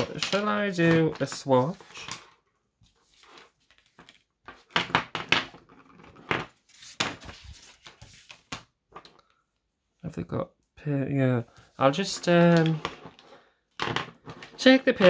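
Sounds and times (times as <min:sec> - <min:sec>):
markers and card clacking and tapping: 0:00.0 - 0:02.4.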